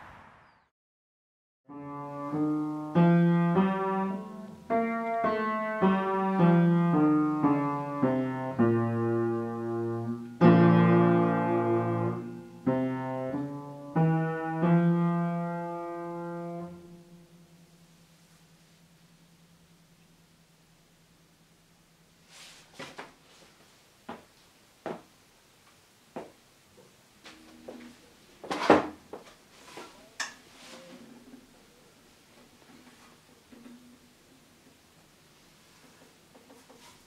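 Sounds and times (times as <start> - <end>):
slow piano notes and chords: 1.7 - 18.0.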